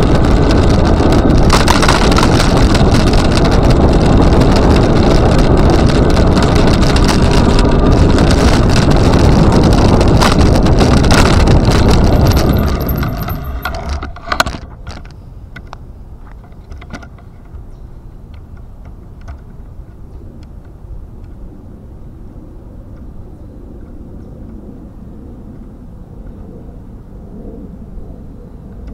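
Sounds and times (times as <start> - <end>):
wind buffeting microphone: 0.0 - 28.9
light clicks and rattles: 10.2 - 17.6.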